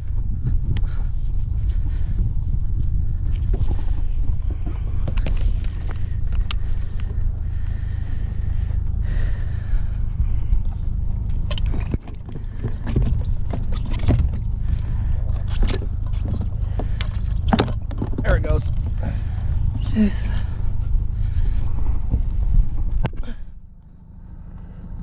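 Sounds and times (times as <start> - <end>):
low steady rumble: 0.0 - 25.0
mooring lines and boat hook knocking: 11.3 - 18.6.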